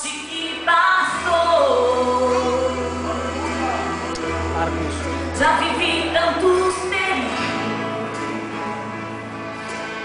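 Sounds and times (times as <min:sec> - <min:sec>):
woman singing into a microphone: 0:00.0 - 0:04.5, 0:05.1 - 0:08.1
music accompaniment: 0:00.0 - 0:10.0.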